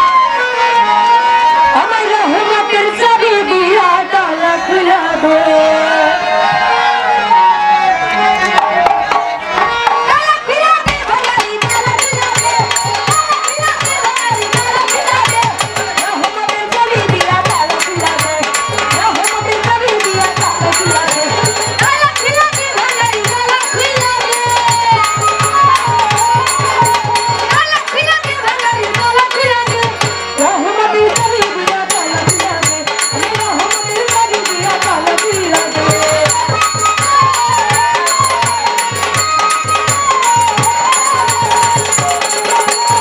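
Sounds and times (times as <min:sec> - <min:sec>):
woman singing: 0:01.5 - 0:06.3, 0:10.1 - 0:43.0
hand drums: 0:08.5 - 0:43.0
steady drum beat with ticking: 0:10.8 - 0:43.0.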